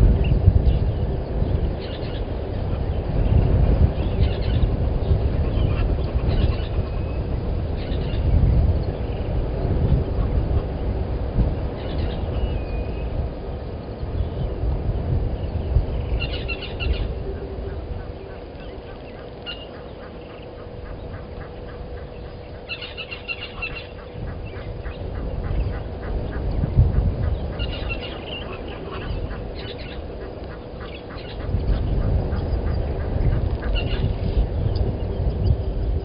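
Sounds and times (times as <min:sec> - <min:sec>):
faint steady hum: 0:00.0 - 0:36.0
low rumble: 0:00.0 - 0:36.0
rattling bird calls: 0:16.0 - 0:34.9.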